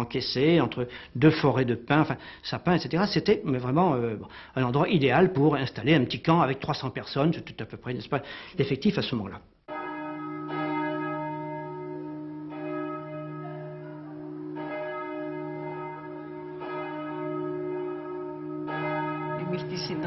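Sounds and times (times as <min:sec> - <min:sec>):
church bell tolling: 0:09.7 - 0:20.0.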